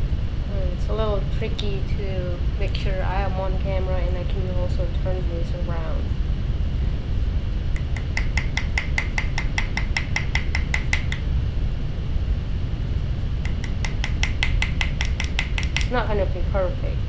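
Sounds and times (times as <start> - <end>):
low background rumble: 0.0 - 17.0
hammer tapping metal rivet: 7.8 - 11.2, 13.5 - 16.0.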